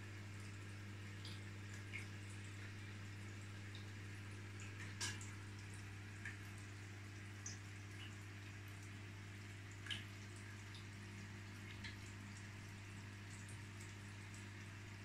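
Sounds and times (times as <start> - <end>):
aquarium pump humming: 0.0 - 15.0
water drips plinking: 0.4 - 9.0, 9.7 - 14.9.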